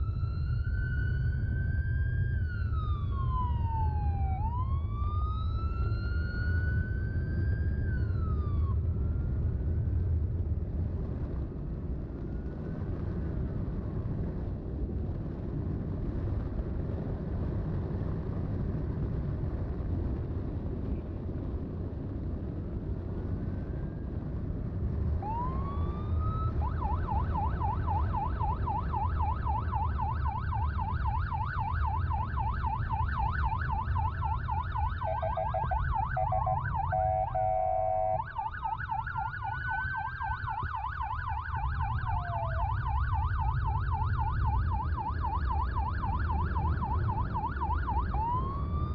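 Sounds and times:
electronic siren wailing and yelping: 0.0s - 9.3s, 25.2s - 48.9s
wind noise: 0.0s - 48.9s
motorcycle engine rumble: 19.5s - 48.4s.

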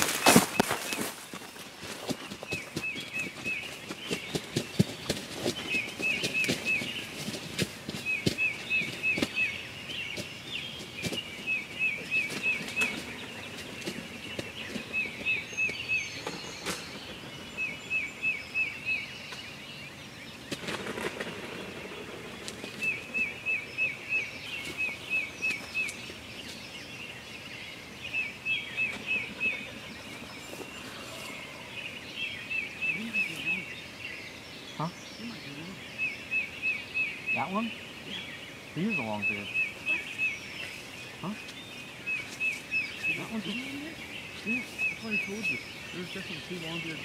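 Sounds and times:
songbird singing whistled notes: 2.4s - 20.0s, 28.1s - 47.0s.

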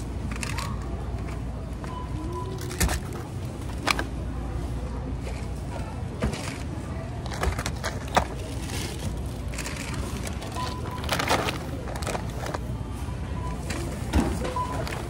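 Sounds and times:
store hum: 0.0s - 15.0s
plastic bags crinkling: 7.3s - 12.7s.

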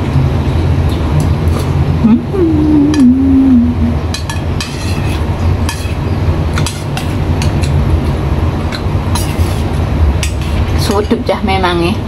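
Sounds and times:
steady low rumble: 0.0s - 12.0s
spoon scraping metal bowl: 4.6s - 6.0s, 9.1s - 9.7s.

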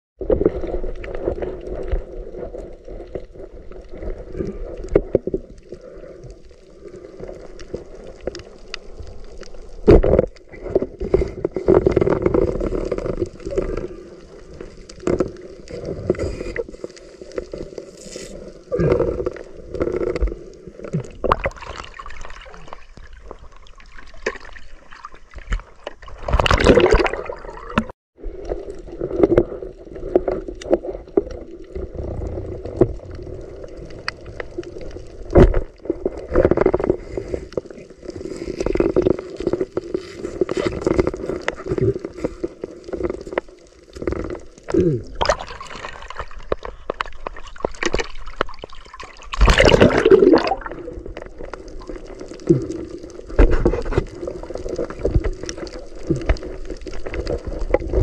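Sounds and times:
water gurgling and sloshing: 0.2s - 58.0s
water splashing: 19.4s - 28.0s, 38.0s - 58.0s.

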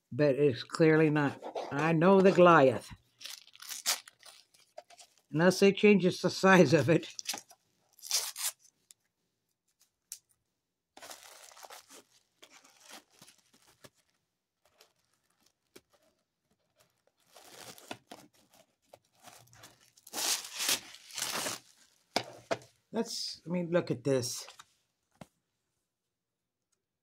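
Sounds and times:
tissue paper rustling and tearing: 3.2s - 5.3s, 7.1s - 8.6s, 11.0s - 22.0s.

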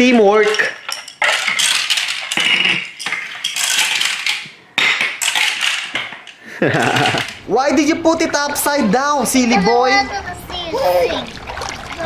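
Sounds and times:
pellets rattling on plastic toys: 0.0s - 7.4s.

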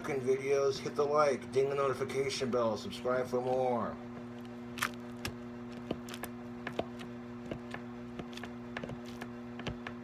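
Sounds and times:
electrical hum: 0.0s - 10.0s.

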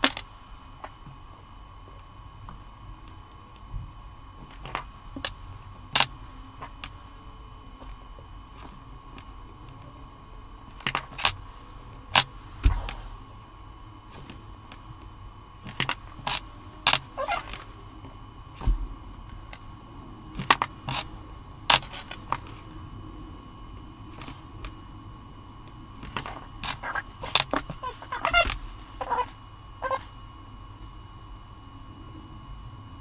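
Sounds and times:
faint high whine: 0.0s - 33.0s.

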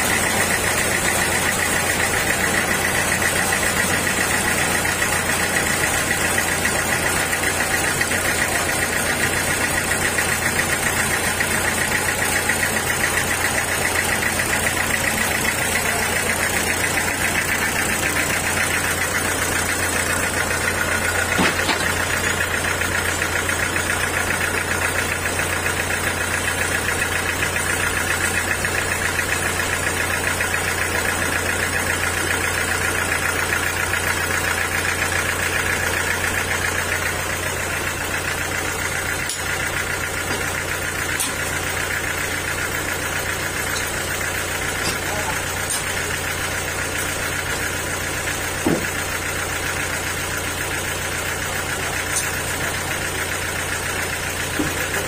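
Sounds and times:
band saw cutting timber: 48.4s - 49.1s.

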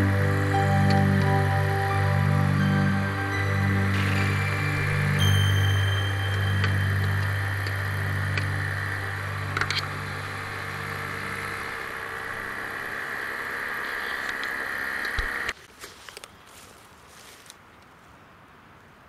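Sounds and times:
paramotor engine idling: 2.9s - 15.6s.

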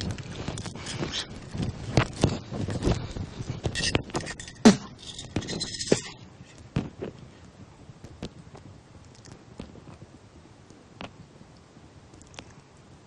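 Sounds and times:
rustling: 0.0s - 12.8s
small objects clicking and scraping: 3.6s - 6.6s.

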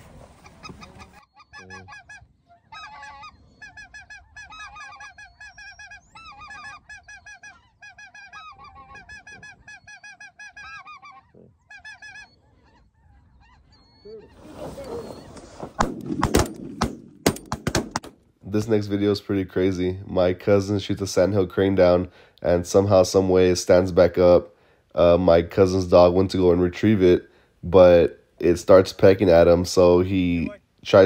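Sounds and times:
geese honking: 0.0s - 15.7s
shotgun shots: 15.8s - 18.2s.

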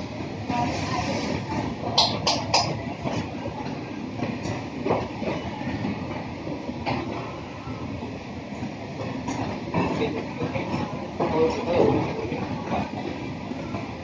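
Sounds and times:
kitchen extraction hood running: 0.0s - 3.3s
stove burners: 0.5s - 3.4s.

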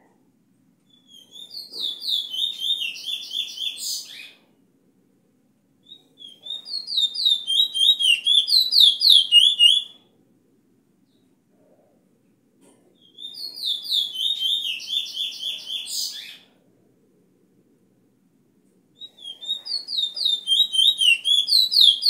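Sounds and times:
bullfinch whistling song: 0.9s - 4.3s, 5.8s - 10.0s, 13.1s - 16.4s, 19.0s - 22.0s.

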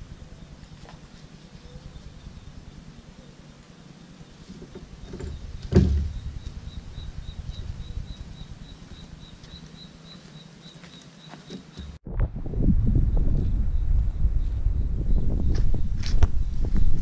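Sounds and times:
handling noise: 4.4s - 12.0s
wind rumble: 4.7s - 9.8s, 11.9s - 17.0s.

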